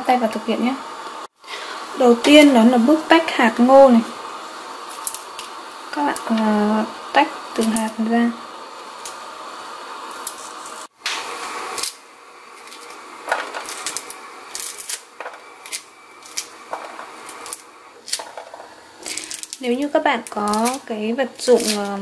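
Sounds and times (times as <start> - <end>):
kernels dropping onto ceramic plate: 16.7 - 19.6.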